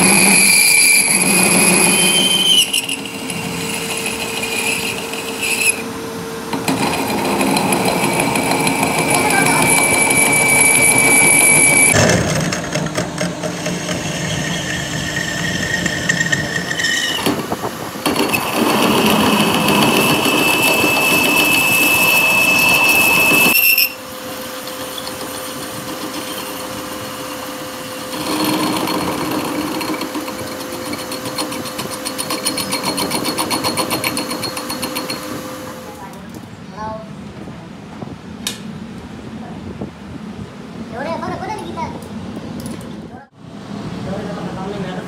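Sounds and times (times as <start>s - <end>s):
high squeal from cutting: 0.0s - 5.9s, 7.1s - 12.0s, 13.7s - 17.3s, 18.2s - 31.1s
metal lathe cutting: 0.0s - 35.8s.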